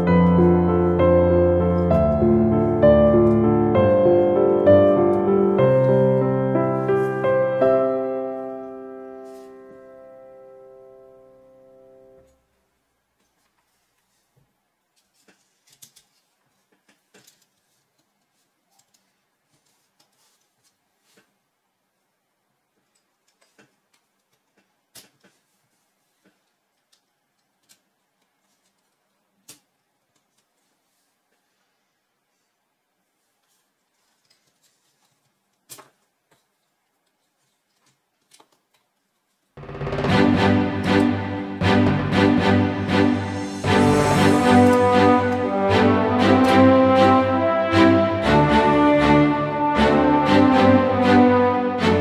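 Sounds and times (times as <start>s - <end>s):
plastic pieces snapping together: 23.2s - 25.4s.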